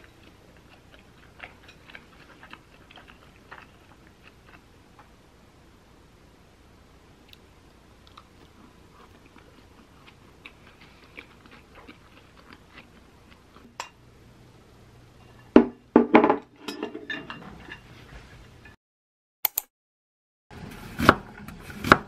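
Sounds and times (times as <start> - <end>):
chewing with soft crunches: 0.0 - 5.2, 7.2 - 13.8.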